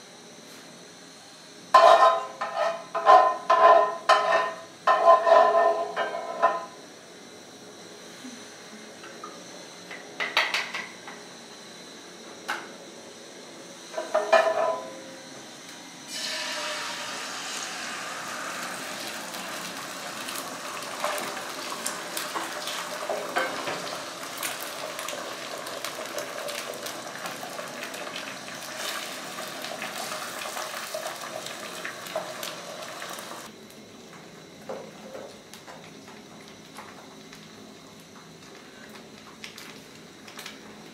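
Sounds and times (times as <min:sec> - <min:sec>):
spatula scraping and tapping pan: 0:01.8 - 0:06.7
eggs sizzling in frying pan: 0:16.1 - 0:40.9.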